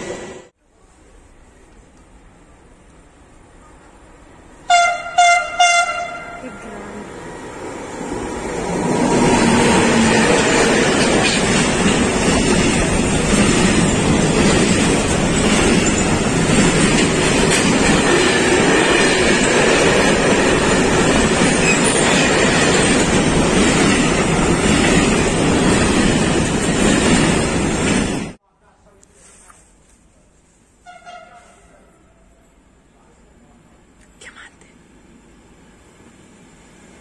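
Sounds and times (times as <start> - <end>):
freight train wheels on rails: 0.0 - 0.6, 6.7 - 28.4.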